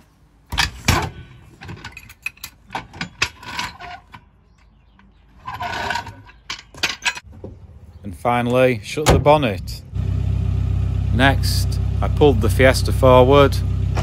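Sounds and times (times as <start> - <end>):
jack scraping across concrete: 5.4 - 7.2.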